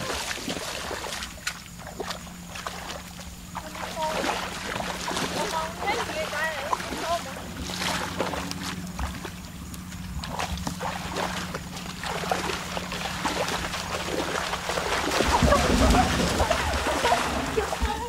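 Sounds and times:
splashing through shallow water: 0.0 - 18.0.

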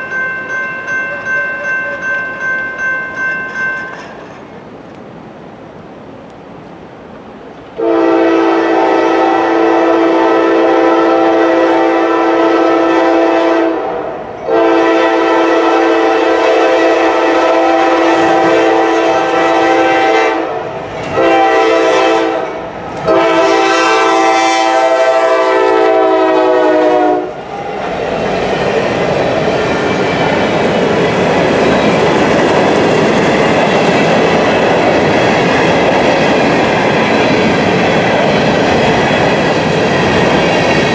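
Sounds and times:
rail cars rumbling and clacking: 0.0 - 40.9
locomotive air horn blasts: 7.8 - 27.4.

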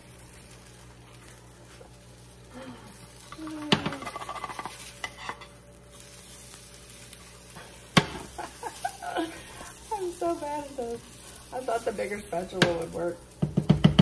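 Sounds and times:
potato patty sizzling: 0.0 - 14.0
spatula scraping frying pan: 3.4 - 9.0.

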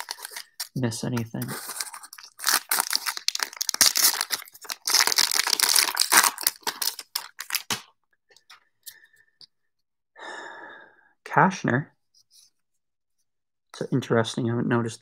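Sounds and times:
cards rustling: 0.0 - 7.9
wrapper tearing and crinkling: 0.0 - 7.9.

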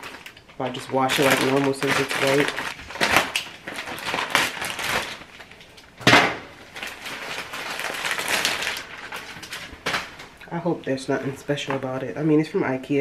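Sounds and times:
duvet cover rustling and crinkling: 0.0 - 5.6, 6.5 - 10.4.

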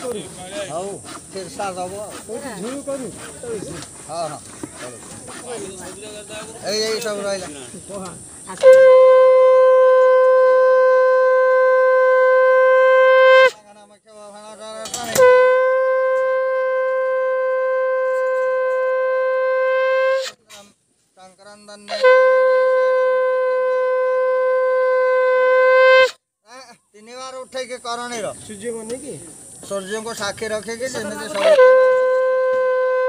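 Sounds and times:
conch shell blasts: 8.5 - 13.8, 14.8 - 20.7, 21.8 - 26.2, 31.0 - 33.0.

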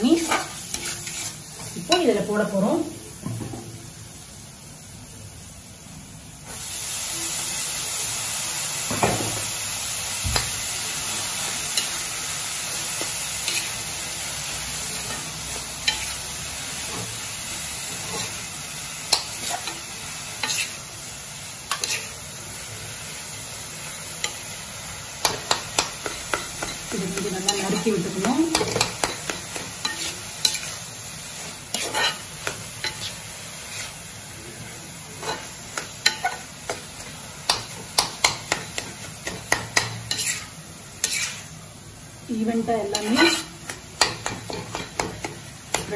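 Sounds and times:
metal spatula scraping a pan: 0.0 - 2.2, 12.8 - 14.0, 14.6 - 18.5, 19.1 - 20.9, 21.7 - 22.2, 25.2 - 34.1, 35.2 - 36.9, 37.5 - 41.6, 42.8 - 45.9
vegetables sizzling in a pan: 0.0 - 45.9.

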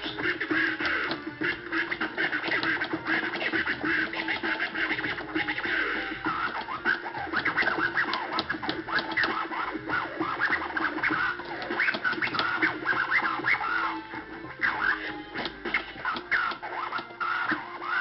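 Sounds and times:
turntable scratching: 0.0 - 18.0.

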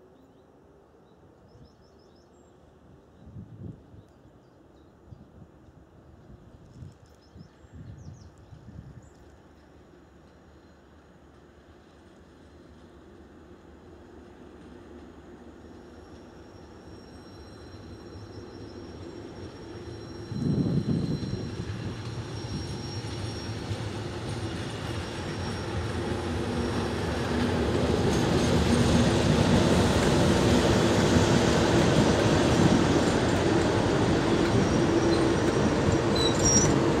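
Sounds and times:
train coaches rumbling past: 8.5 - 37.0
diesel locomotive engine: 8.7 - 37.0.

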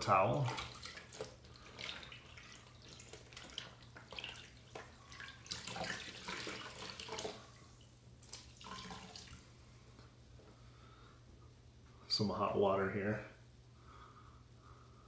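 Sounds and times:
water splashing on a towel: 0.0 - 9.5
water running from a tap: 0.2 - 9.4.

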